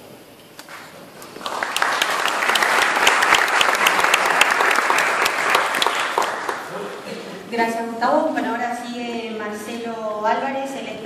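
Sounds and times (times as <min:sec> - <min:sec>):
audience applauding: 0:00.7 - 0:07.0.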